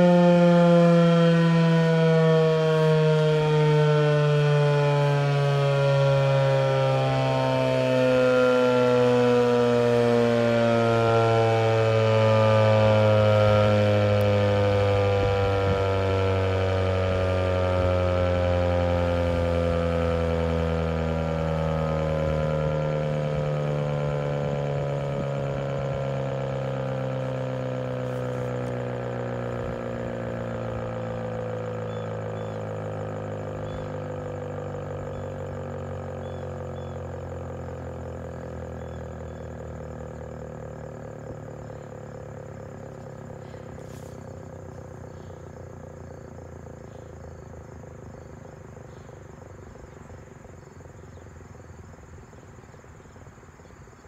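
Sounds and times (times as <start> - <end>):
warning siren winding down: 0.0 - 54.0
crickets chirping faintly: 21.5 - 54.0.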